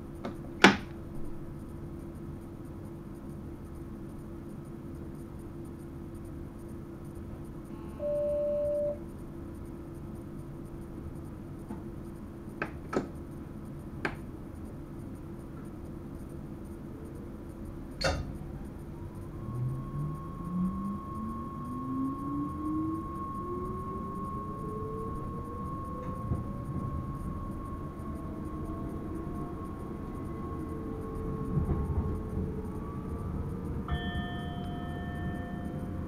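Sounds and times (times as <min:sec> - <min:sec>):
train cab hum: 0:00.0 - 0:36.0
short electronic beep: 0:07.8 - 0:09.0.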